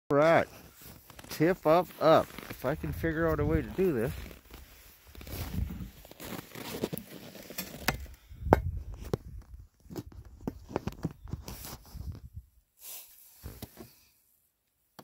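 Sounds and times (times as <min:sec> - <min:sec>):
footsteps crunching in snow: 0:00.5 - 0:07.6.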